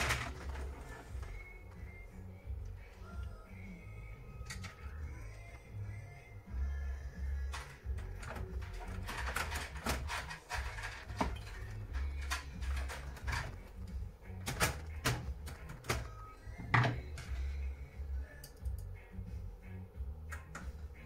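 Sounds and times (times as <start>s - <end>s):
background music: 0.0s - 21.0s
plastic and metal parts clicking: 7.5s - 13.6s.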